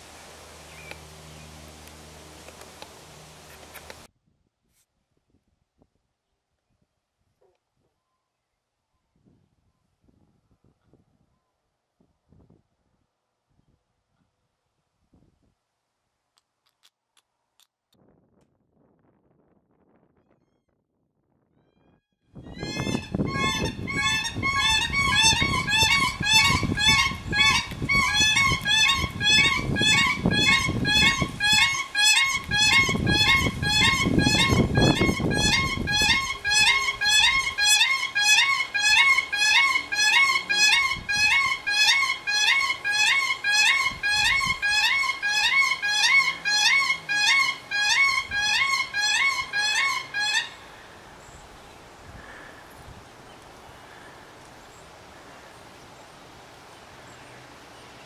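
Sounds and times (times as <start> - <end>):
low rumbling noise: 0.0 - 4.1
cranes calling in unison: 22.4 - 51.2.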